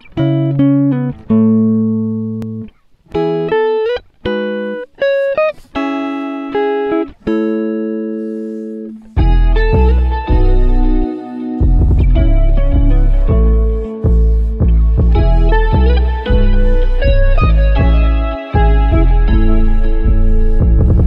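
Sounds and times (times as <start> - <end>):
guitar picking slow notes: 0.0 - 21.0
deep bass: 9.2 - 21.0.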